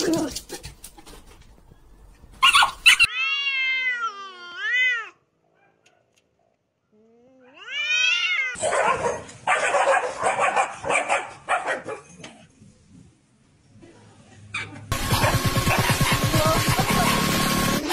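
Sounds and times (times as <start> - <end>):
cats caterwauling: 2.9 - 5.2, 7.0 - 8.6.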